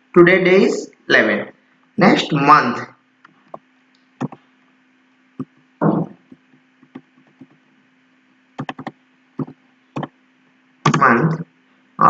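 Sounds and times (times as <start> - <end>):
faint steady hum: 0.0 - 12.0
keyboard key clicks: 8.6 - 10.1.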